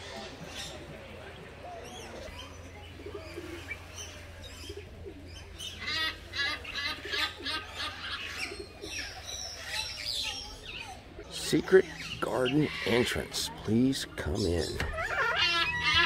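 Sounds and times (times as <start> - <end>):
birds chirping and whistling: 6.6 - 16.0.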